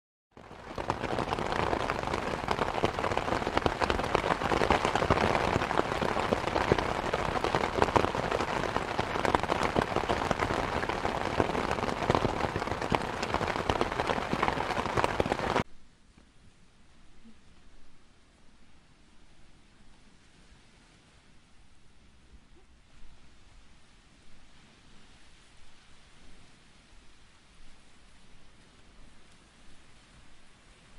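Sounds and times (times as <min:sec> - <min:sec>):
rain falling: 0:00.4 - 0:15.6.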